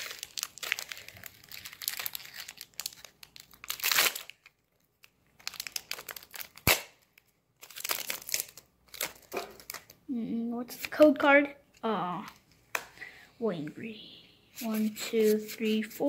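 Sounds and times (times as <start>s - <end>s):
foil wrapper crinkling: 0.0s - 10.0s.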